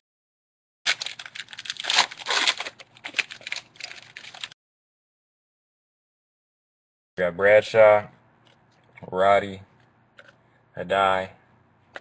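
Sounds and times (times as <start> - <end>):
wrapper tearing and crinkling: 0.9 - 4.6.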